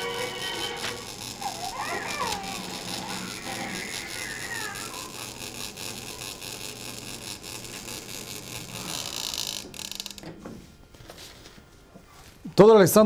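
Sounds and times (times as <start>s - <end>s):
crackling clicks: 0.0s - 10.4s.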